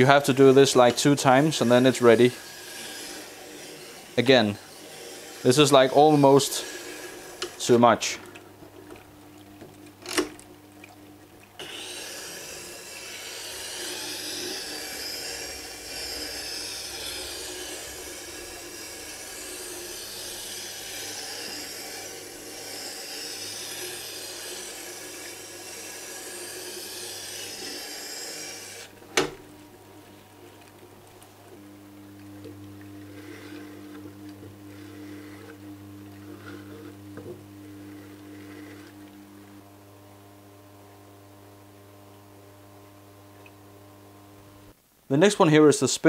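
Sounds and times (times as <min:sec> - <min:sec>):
gouge grinding on sharpening wheel: 0:00.0 - 0:07.7, 0:11.6 - 0:29.0, 0:33.0 - 0:37.0, 0:37.6 - 0:39.5.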